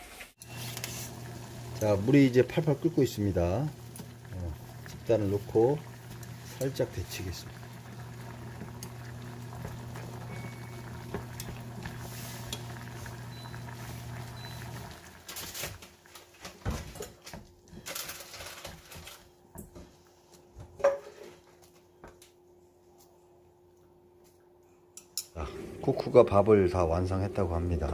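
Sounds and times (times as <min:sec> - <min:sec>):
water boiling in a saucepan: 0:00.4 - 0:19.1, 0:25.4 - 0:27.9.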